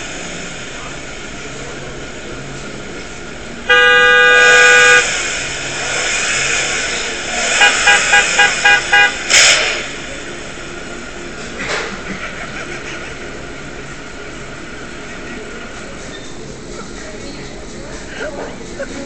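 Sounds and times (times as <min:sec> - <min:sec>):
car horn blasts: 0:03.7 - 0:05.1, 0:07.6 - 0:09.3
short car horn toots: 0:03.7 - 0:05.1, 0:07.6 - 0:09.2.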